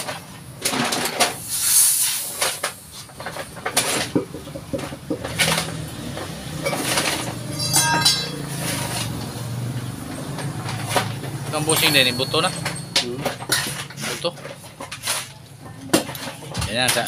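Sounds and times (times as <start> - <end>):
wrench clinking on metal: 6.6 - 9.0, 11.5 - 14.0.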